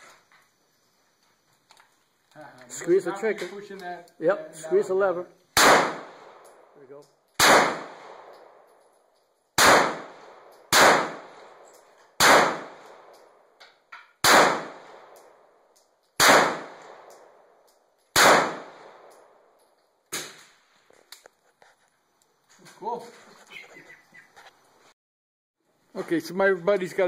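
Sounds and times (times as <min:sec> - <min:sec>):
pistol shots ringing: 0:05.6 - 0:06.5, 0:07.4 - 0:08.7, 0:09.6 - 0:13.3, 0:14.2 - 0:15.4, 0:16.2 - 0:17.4, 0:18.1 - 0:19.4.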